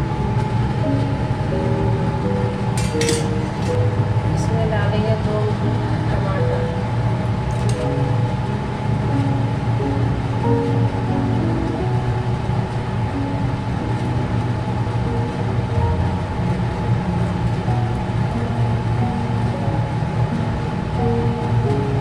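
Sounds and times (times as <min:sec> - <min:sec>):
instrumental music melody: 0:00.0 - 0:22.0
low drone: 0:00.0 - 0:22.0.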